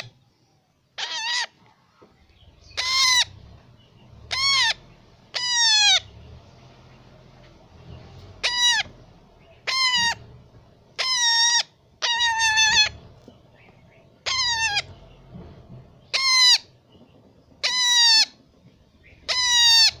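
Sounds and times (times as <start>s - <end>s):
parrot harsh calls: 1.0s - 1.6s, 2.6s - 3.4s, 4.2s - 6.1s, 8.3s - 10.2s, 11.0s - 13.0s, 14.2s - 15.0s, 16.1s - 16.7s, 17.6s - 18.4s, 19.2s - 20.0s.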